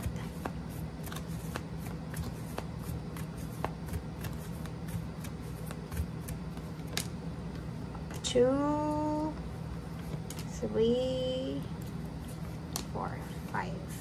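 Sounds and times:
cards being shuffled: 0.0 - 7.2.

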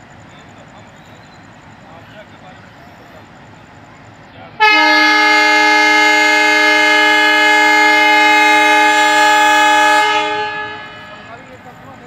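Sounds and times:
locomotive horn blast: 4.6 - 11.6.

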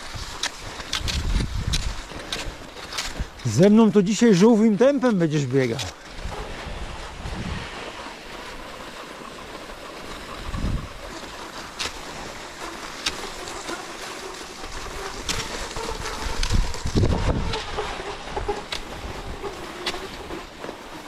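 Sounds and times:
wind buffeting microphone: 0.0 - 2.3, 6.0 - 12.7, 14.6 - 20.5
skis gliding on snow: 0.0 - 21.0.

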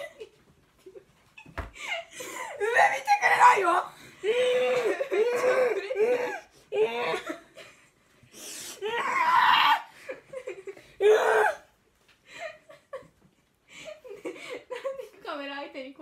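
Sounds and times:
women laughing: 9.9 - 11.0, 12.3 - 15.2.

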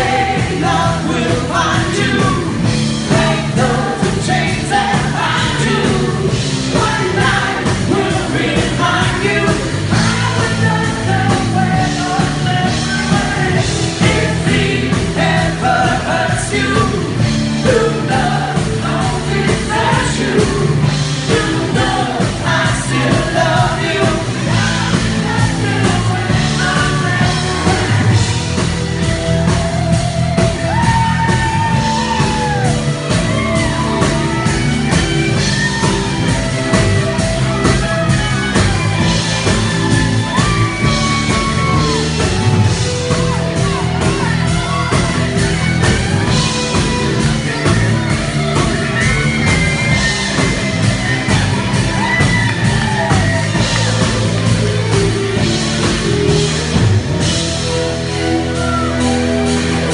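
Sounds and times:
man singing: 0.0 - 28.2
live rock band playing: 0.0 - 59.9.

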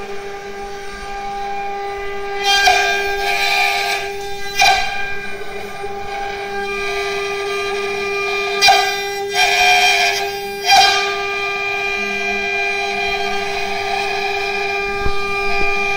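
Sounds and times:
router bit cutting wood: 0.0 - 15.9
router spindle whine: 0.0 - 15.9.

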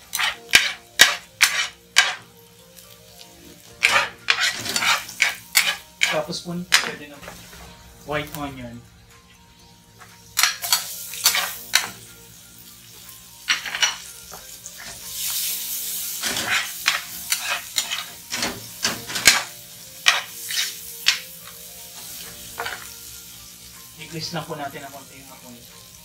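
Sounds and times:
metal spatula scraping pan: 0.0 - 2.2, 3.8 - 6.9, 16.2 - 19.4, 20.0 - 20.8
onion sizzling in oil: 0.0 - 26.0.

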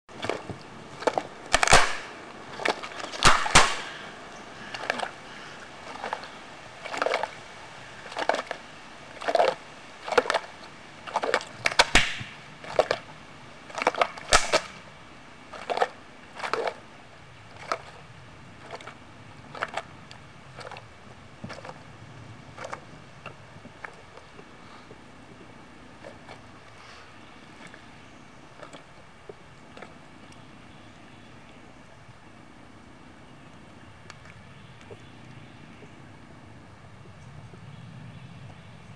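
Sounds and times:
jaws crunching turtle shell: 0.1 - 4.0, 8.0 - 14.8, 15.5 - 16.8.

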